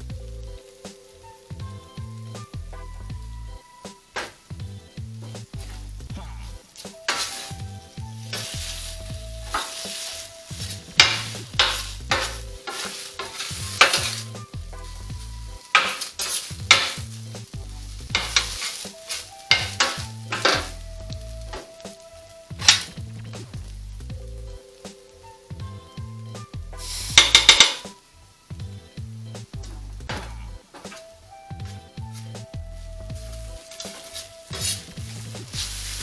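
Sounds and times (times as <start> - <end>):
noodles sizzling on griddle: 0.0 - 36.0
metal spatula scraping griddle: 6.7 - 20.8, 22.5 - 23.0, 26.8 - 27.9, 33.5 - 36.0.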